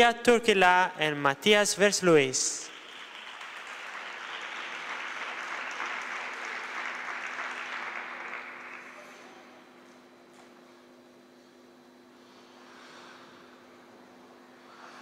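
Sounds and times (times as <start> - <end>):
spectators applauding: 2.4 - 9.6.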